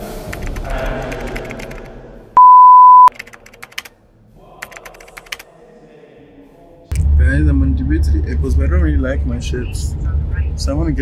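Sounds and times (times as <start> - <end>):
electronic beep: 2.4 - 3.1
keyboard typing clicks: 3.2 - 3.9.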